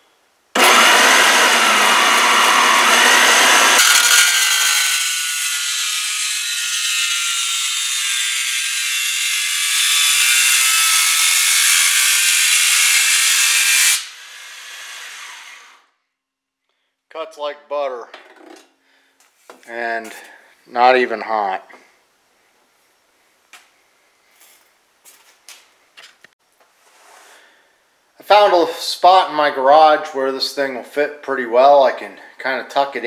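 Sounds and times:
bandsaw cutting sheet metal: 0.6s - 15.8s.

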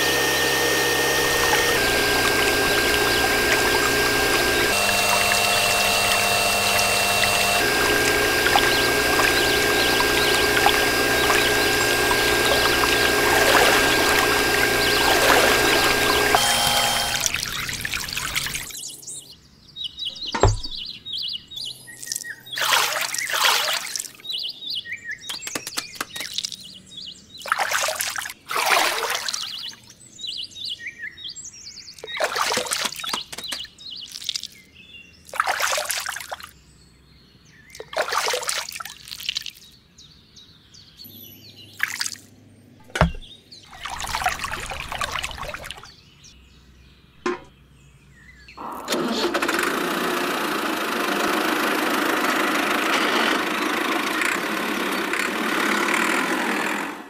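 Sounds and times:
muddy water splashing: 0.0s - 18.8s, 22.0s - 24.2s, 27.5s - 29.6s, 32.0s - 34.6s, 35.3s - 36.5s, 37.8s - 39.7s, 42.8s - 45.9s.

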